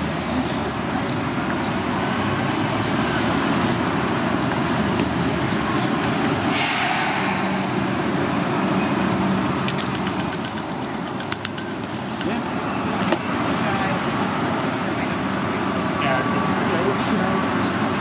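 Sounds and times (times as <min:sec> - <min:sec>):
heavy vehicle engine rumble: 0:00.0 - 0:10.3
city street traffic: 0:00.0 - 0:18.0.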